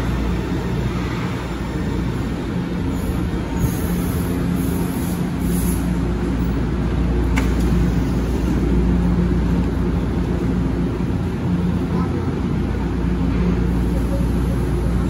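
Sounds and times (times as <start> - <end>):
train doors opening: 0.0 - 8.6
subway train equipment humming: 0.0 - 15.0.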